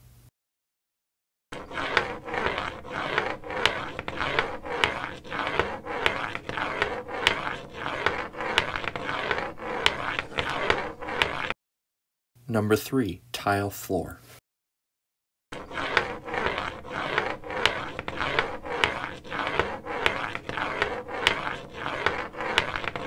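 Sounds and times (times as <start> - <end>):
cane scraping on tile floor: 1.5 - 11.6, 15.5 - 23.0.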